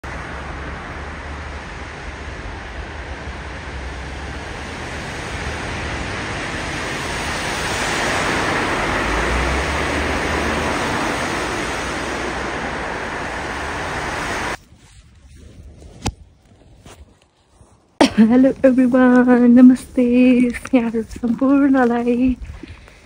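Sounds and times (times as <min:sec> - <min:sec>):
low rumble: 0:00.0 - 0:14.6
wind buffeting microphone: 0:00.0 - 0:23.0.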